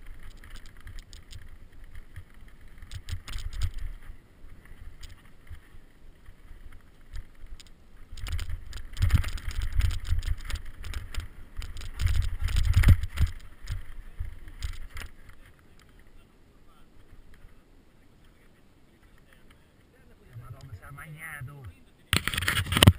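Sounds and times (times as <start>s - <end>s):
bike rattling over bumps: 0.0s - 16.1s
wind rumble on microphone: 0.0s - 17.6s, 18.2s - 22.9s.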